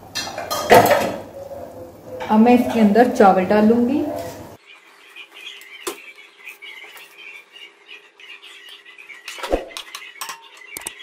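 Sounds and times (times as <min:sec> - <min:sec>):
faint high chirping: 0:04.6 - 0:11.0.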